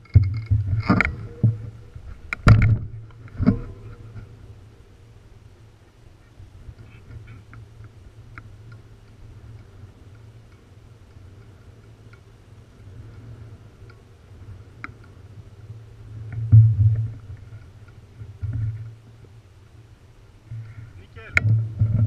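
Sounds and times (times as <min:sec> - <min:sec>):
wind buffeting microphone: 0:00.0 - 0:22.0
faint clicks: 0:06.7 - 0:12.3, 0:14.7 - 0:15.2.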